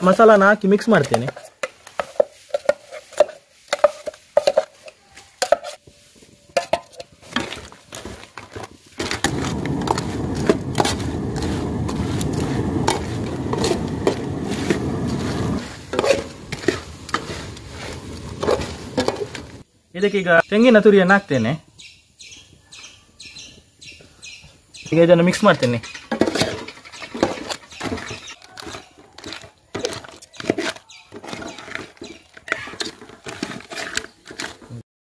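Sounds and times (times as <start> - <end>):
ladle stirring wet paste: 0.0 - 19.6, 26.2 - 34.8
spoon scraping metal bowl: 0.9 - 5.8, 9.0 - 19.6, 28.5 - 34.8.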